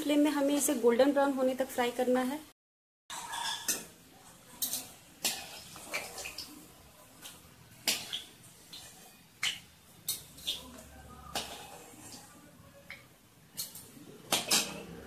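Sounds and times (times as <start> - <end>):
metal utensils clinking on a wok: 3.1 - 6.5, 7.8 - 12.2, 12.9 - 15.0
oil sizzling: 3.1 - 15.0.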